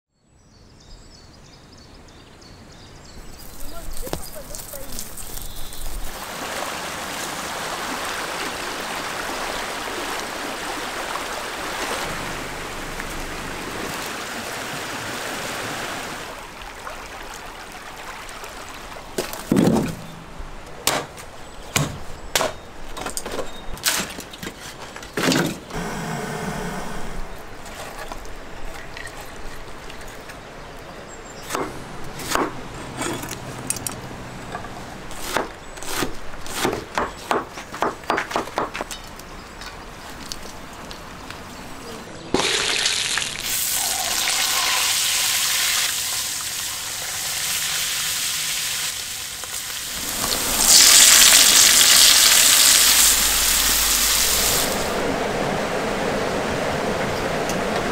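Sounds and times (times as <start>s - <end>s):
mountain stream rushing: 3.7s - 20.7s, 40.6s - 57.9s
knife chopping on wooden board: 35.2s - 38.8s.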